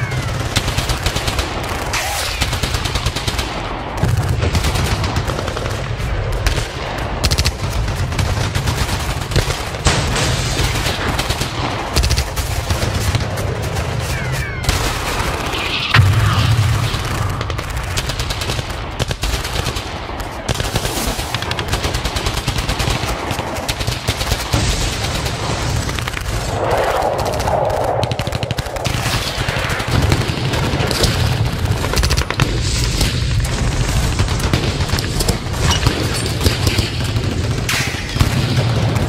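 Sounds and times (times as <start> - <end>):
airsoft rifles firing bursts: 16.9 - 26.2, 28.2 - 39.0.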